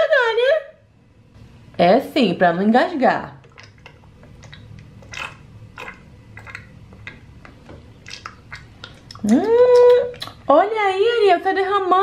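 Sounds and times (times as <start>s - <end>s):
doll sipping and smacking: 3.4s - 10.5s.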